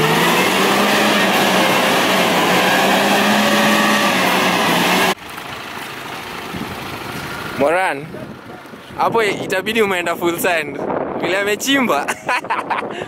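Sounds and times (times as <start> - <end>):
engine at high revs: 0.0 - 5.2.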